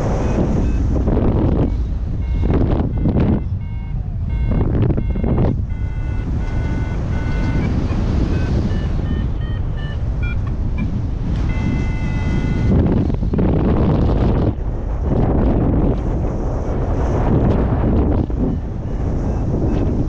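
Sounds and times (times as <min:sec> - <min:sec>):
wind buffeting microphone: 0:00.0 - 0:20.0
short electronic beeps: 0:00.2 - 0:13.0
rush of airflow: 0:10.0 - 0:20.0.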